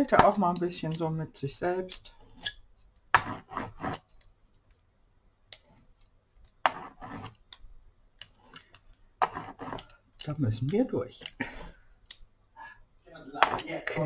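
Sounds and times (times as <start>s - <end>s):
paint scraper scraping paper: 3.2s - 4.1s, 6.6s - 7.4s, 9.2s - 9.9s.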